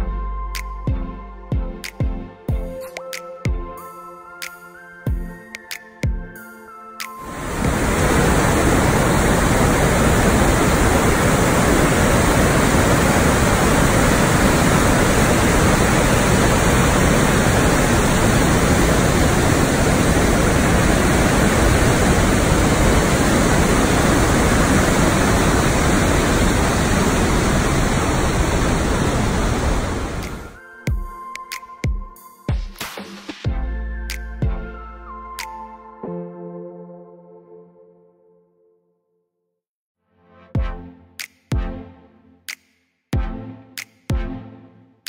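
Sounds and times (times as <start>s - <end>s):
loud rushing noise: 7.2s - 30.6s.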